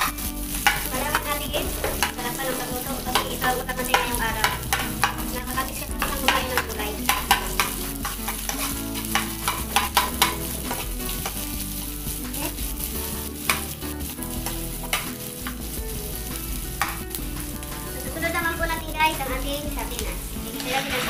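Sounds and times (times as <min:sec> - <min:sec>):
metal spoon scraping pan: 0:00.0 - 0:11.5, 0:20.5 - 0:21.0
onion and garlic sizzling in oil: 0:00.0 - 0:21.0.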